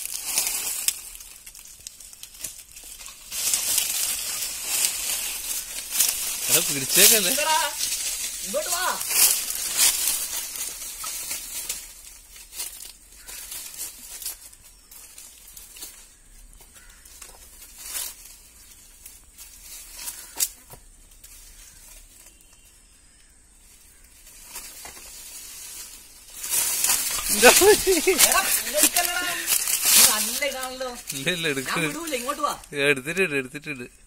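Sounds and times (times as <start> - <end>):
dry leaves rustling and crackling: 0.0 - 32.8.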